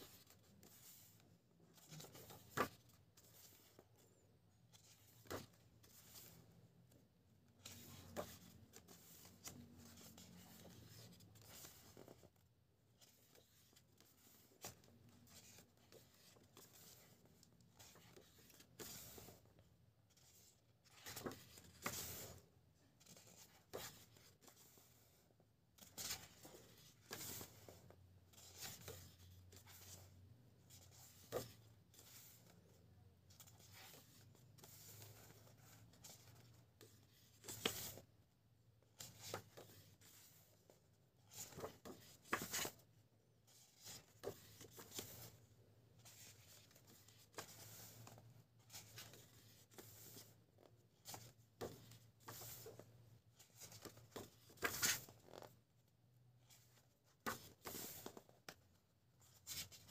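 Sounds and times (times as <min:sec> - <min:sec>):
book pages turning: 0:00.0 - 0:04.1, 0:04.7 - 0:06.5, 0:07.5 - 0:12.3, 0:13.0 - 0:19.5, 0:20.1 - 0:22.4, 0:23.0 - 0:25.2, 0:25.8 - 0:32.7, 0:33.3 - 0:38.0, 0:39.0 - 0:40.4, 0:41.2 - 0:42.8, 0:43.5 - 0:45.4, 0:46.0 - 0:52.8, 0:53.4 - 0:55.6, 0:56.5 - 0:58.6
page flipping swishes: 0:53.6 - 0:55.5.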